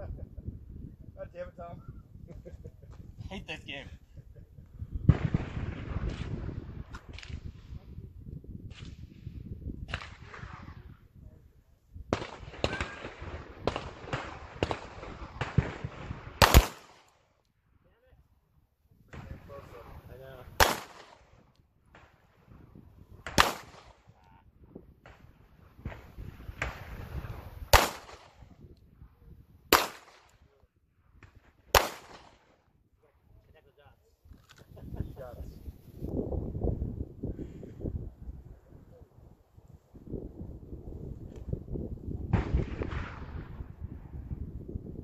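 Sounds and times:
wind rumble on microphone: 0.0 - 16.7, 17.6 - 20.6, 21.2 - 45.0
pistol gunshots: 12.1 - 17.2, 20.6 - 21.3, 23.2 - 24.0, 27.7 - 28.5, 29.7 - 30.4, 31.7 - 32.5.

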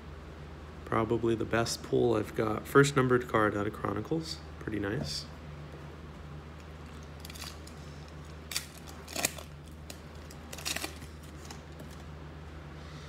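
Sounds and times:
steady low hum: 0.0 - 13.0
wrapper tearing with crinkling: 6.8 - 12.1.

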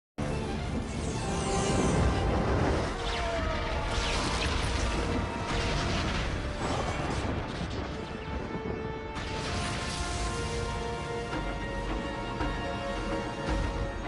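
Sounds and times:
dramatic music with sustained tones: 0.2 - 14.0
crackling lightning blasts: 0.9 - 11.8
rumbling thunder: 1.8 - 12.8.

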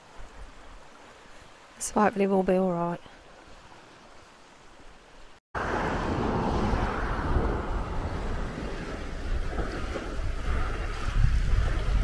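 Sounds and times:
open sea wash: 0.0 - 12.0
wind rumble on microphone: 5.6 - 12.0.

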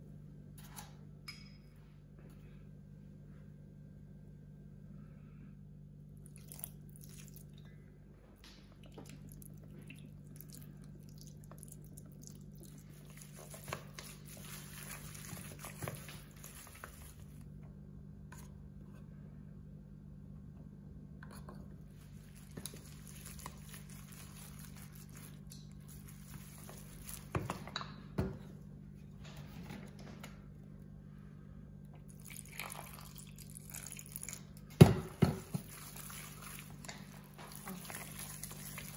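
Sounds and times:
steady low hum: 0.0 - 38.9
squishy mixing of wet meat: 6.2 - 7.7, 8.4 - 17.6, 21.8 - 27.8, 32.0 - 38.9
water pouring: 6.2 - 7.7, 8.8 - 17.4, 32.1 - 34.6, 35.2 - 38.9.

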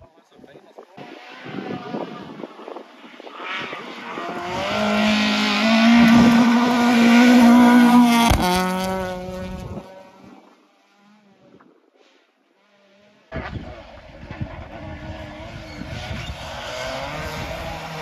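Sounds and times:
rally car engine passing: 1.0 - 11.4, 12.6 - 18.0.

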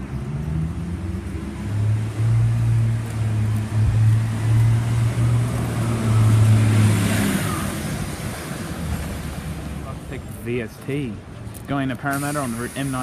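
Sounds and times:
bus engine drone: 0.0 - 13.0
hiss of passing bus: 12.0 - 13.0.

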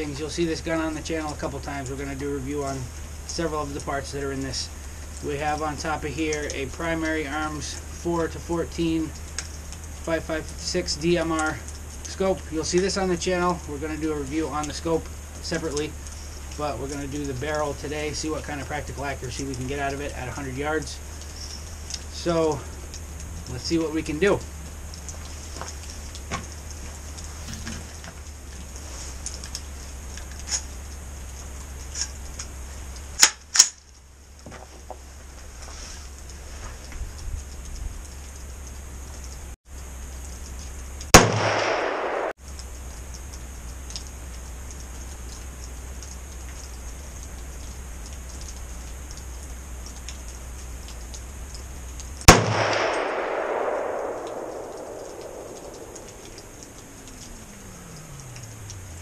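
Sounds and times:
faint clicks: 9.1 - 35.0, 36.0 - 59.0
gunshot cracks: 41.2 - 42.4, 52.3 - 56.6
pistol shot echoing: 41.2 - 42.4, 52.3 - 56.8.

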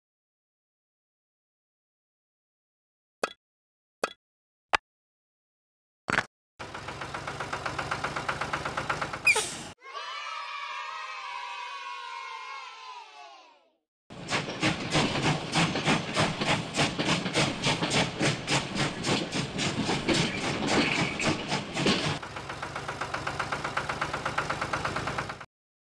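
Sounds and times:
small engine puttering: 6.6 - 9.7, 14.3 - 25.5
steam train chuffing: 6.6 - 9.8, 14.1 - 25.5.

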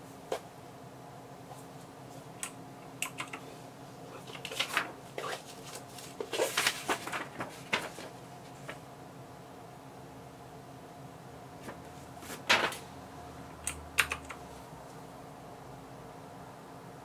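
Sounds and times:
faint steady hum: 0.0 - 17.0
mechanical keyboard typing: 2.4 - 3.4, 13.7 - 14.4.

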